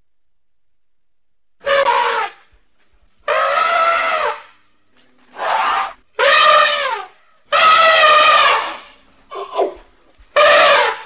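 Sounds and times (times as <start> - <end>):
elephant calf hooting: 1.6 - 2.4, 3.3 - 4.6, 5.3 - 11.0.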